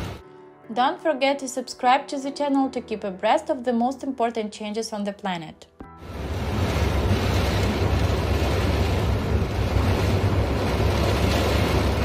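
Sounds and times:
heavy rain: 0:00.0 - 0:00.2, 0:06.0 - 0:12.0
rushing floodwater: 0:06.0 - 0:12.0
wind buffeting microphone: 0:06.1 - 0:12.0.

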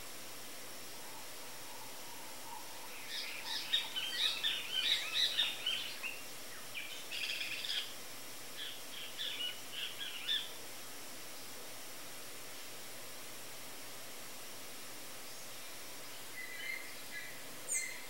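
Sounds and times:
steady background hiss: 0:00.0 - 0:18.0
small birds chirping: 0:02.4 - 0:10.6, 0:15.2 - 0:18.0.

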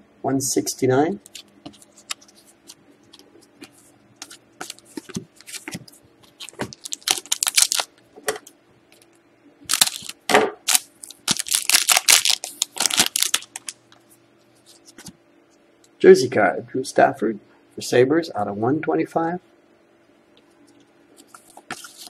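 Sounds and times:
foil wrapper crinkling: 0:04.2 - 0:08.0, 0:09.7 - 0:13.8, 0:21.2 - 0:22.0.

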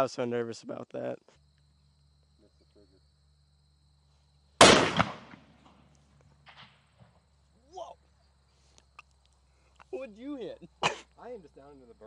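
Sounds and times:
rifle shot: 0:04.6 - 0:05.8, 0:06.4 - 0:06.8.

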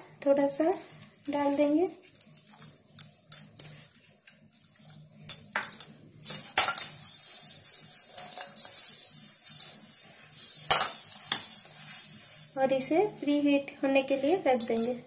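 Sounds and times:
hands and pot clinking: 0:10.6 - 0:11.6.

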